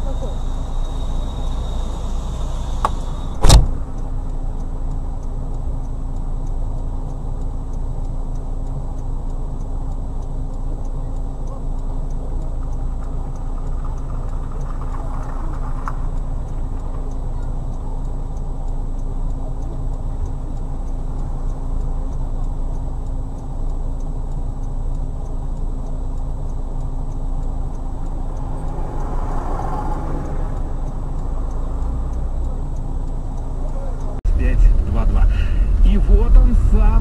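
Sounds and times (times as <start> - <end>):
car engine and road noise: 0.0 - 37.0
faint ticking: 0.0 - 37.0
rush of noise: 34.3 - 37.0.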